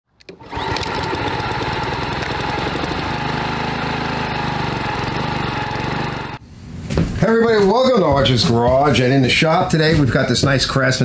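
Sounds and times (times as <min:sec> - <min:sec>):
lawn mower engine running: 0:00.2 - 0:06.4.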